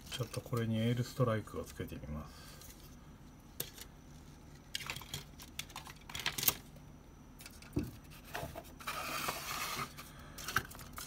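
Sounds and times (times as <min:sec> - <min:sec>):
plastic parts clicking and rattling: 0:04.6 - 0:06.7.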